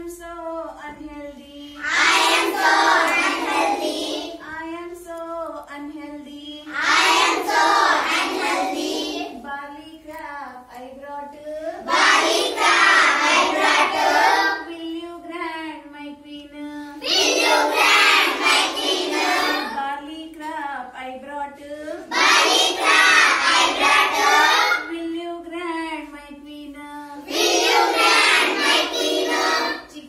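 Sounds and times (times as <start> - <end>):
children singing: 1.8 - 4.5, 6.7 - 9.4, 11.8 - 14.7, 17.0 - 19.8, 22.1 - 24.9, 27.2 - 29.9.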